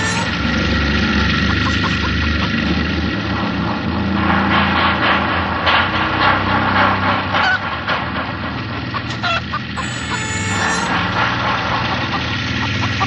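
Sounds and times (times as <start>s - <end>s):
harsh honking and screeching: 0.0s - 2.6s, 7.2s - 7.8s, 9.0s - 13.0s
low motor-like drone: 0.0s - 13.0s.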